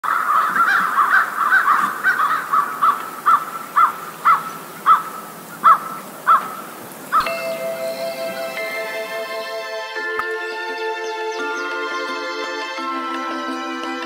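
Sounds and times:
gulls calling: 0.0 - 14.0.

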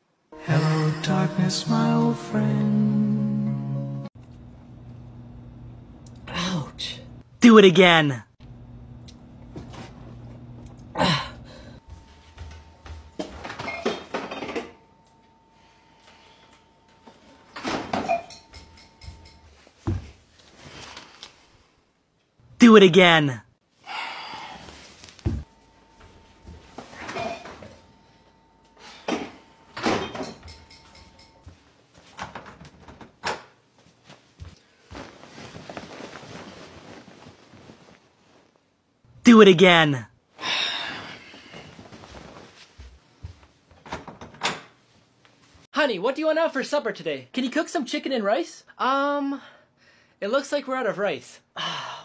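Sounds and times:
man groaning in pain: 10.9 - 11.5.

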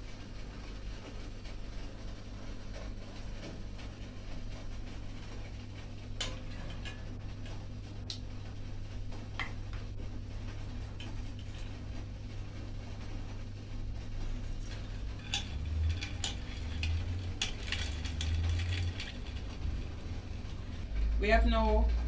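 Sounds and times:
steady low hum: 0.0 - 22.0
metal bowls clinking: 14.6 - 20.2.

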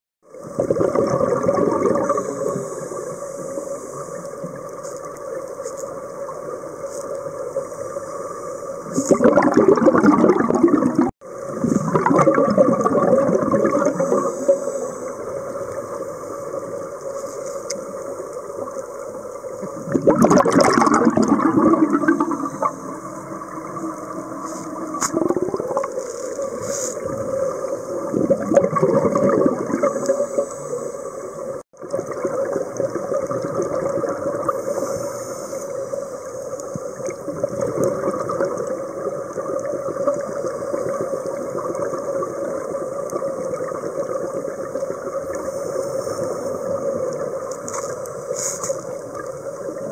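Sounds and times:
underwater hum: 0.2 - 49.9
regulator exhale bubbling: 0.4 - 4.6, 8.8 - 16.3, 19.6 - 42.6.

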